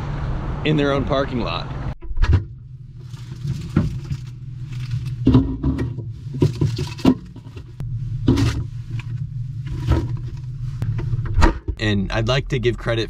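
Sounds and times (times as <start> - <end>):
engine and road drone: 0.0 - 3.3.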